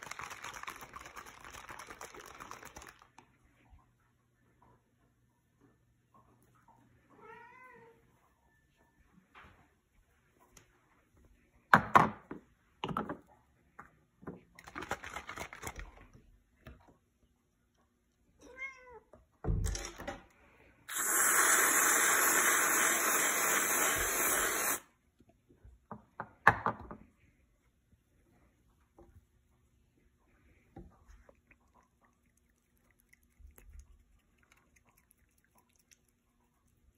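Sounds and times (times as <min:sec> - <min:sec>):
cat meowing: 0:18.4 - 0:19.0
aerosol can spraying hiss: 0:20.9 - 0:24.8.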